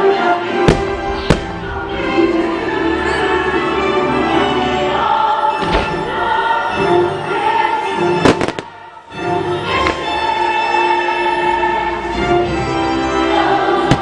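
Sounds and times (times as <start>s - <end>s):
choir and orchestra music: 0.0s - 14.0s
firework shells banging: 0.7s - 1.9s.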